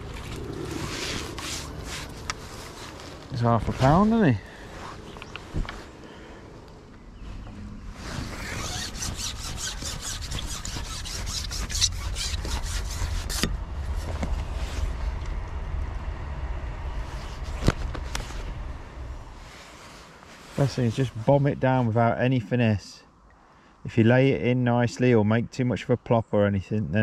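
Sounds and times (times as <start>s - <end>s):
low rumble: 0.0s - 8.6s, 12.9s - 19.8s
fishing pole rubbing rasp: 0.4s - 3.1s, 8.0s - 13.5s.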